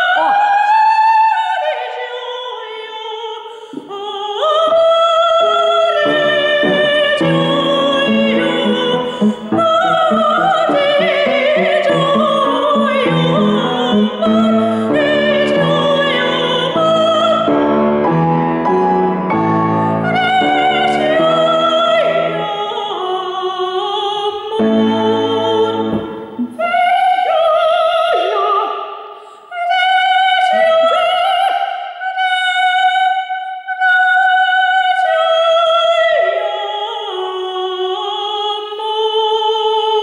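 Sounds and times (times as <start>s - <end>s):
woman singing opera: 0.0s - 40.0s
piano chords: 5.4s - 22.8s, 24.5s - 26.8s.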